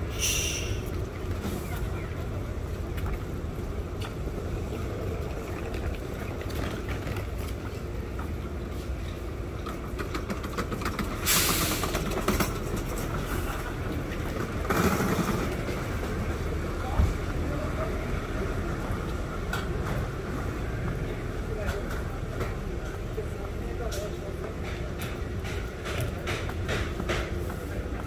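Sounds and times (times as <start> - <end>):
loud hissing bursts: 0.0 - 0.9
street traffic rumbling: 0.0 - 28.0.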